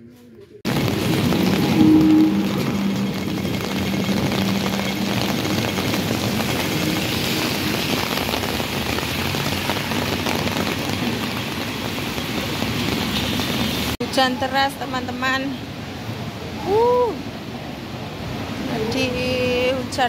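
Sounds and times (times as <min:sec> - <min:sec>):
tram humming: 0:00.7 - 0:08.6
heavy rain hissing on street: 0:00.7 - 0:20.0.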